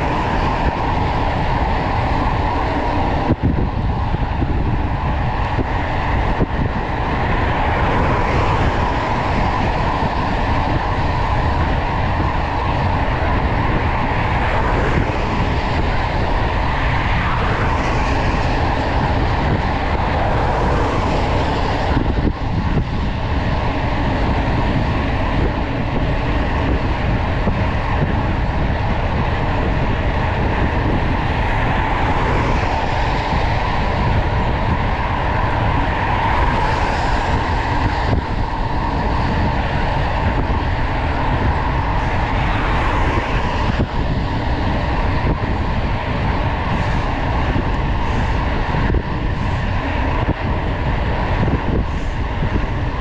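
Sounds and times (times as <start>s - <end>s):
bike tyres rumbling on road: 0.0s - 53.0s
wind buffeting microphone: 0.0s - 53.0s.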